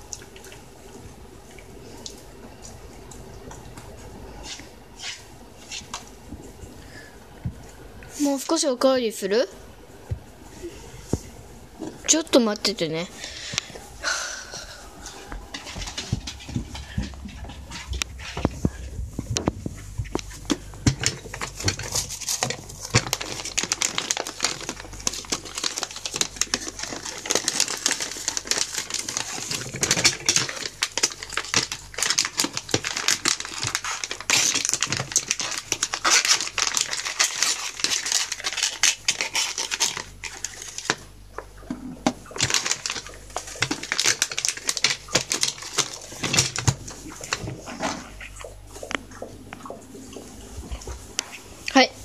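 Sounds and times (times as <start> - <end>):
plastic packets crinkling: 19.6 - 41.2, 42.1 - 47.7.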